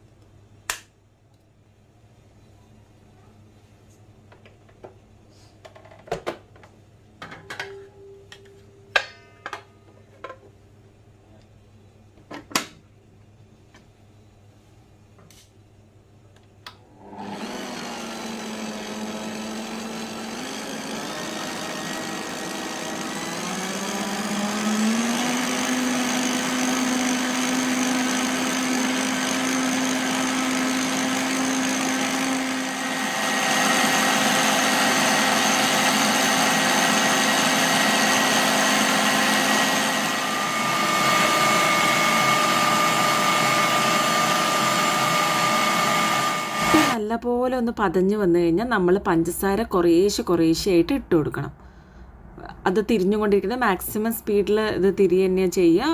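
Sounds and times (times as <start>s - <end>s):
stand mixer motor humming: 17.0s - 47.0s.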